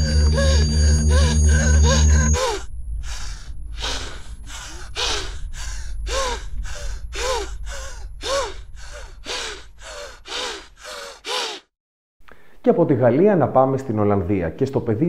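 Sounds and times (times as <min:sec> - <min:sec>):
person panting: 0:00.0 - 0:11.7.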